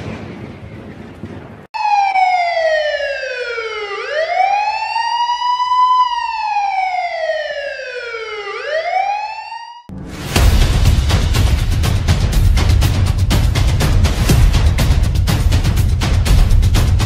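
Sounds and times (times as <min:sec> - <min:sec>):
siren wailing: 0:01.8 - 0:09.9
boom: 0:09.9 - 0:12.1.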